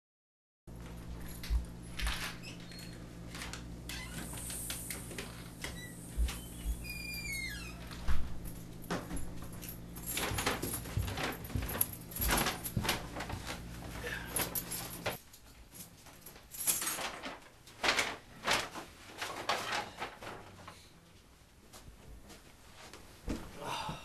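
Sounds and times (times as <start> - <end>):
footsteps coming down stairs: 0.8 - 2.5, 3.3 - 15.2, 21.6 - 24.0
paper bag rustling: 16.6 - 20.8.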